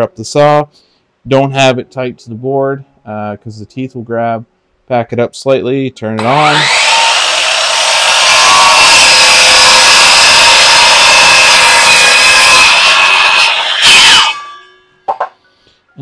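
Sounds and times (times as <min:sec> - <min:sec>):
circular saw cutting wood: 0:06.2 - 0:14.8.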